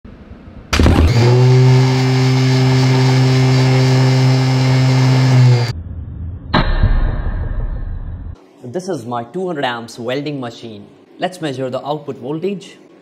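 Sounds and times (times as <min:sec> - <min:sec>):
electric motor humming: 0:00.8 - 0:05.7.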